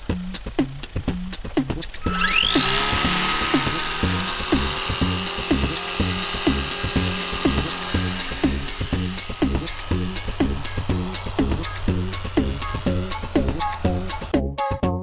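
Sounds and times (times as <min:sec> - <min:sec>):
model plane motor whining: 0:00.0 - 0:14.3
electronic dance music: 0:03.2 - 0:14.3.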